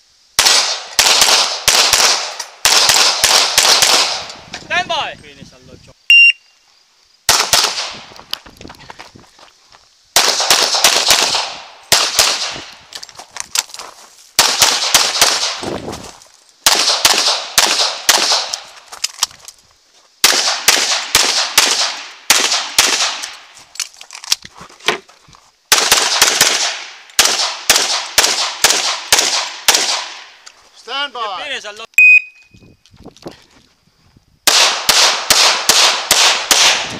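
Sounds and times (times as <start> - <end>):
rapid pistol shots echoing: 0.4 - 4.3, 7.3 - 8.0, 10.2 - 12.7, 14.4 - 15.6, 16.6 - 18.6, 20.2 - 23.4, 25.7 - 30.3, 34.5 - 36.9.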